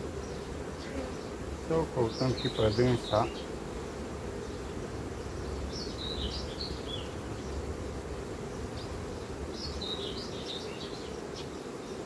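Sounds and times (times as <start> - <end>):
honey bees humming: 0.0 - 12.0
bird chirping: 2.0 - 3.6, 4.4 - 7.6, 8.5 - 12.0.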